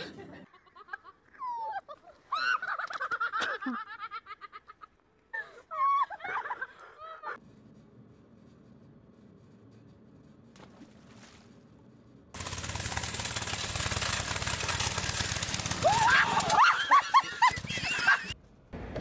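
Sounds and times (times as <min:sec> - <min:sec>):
high-pitched shrieking laughter: 0:00.6 - 0:07.4, 0:15.8 - 0:18.4.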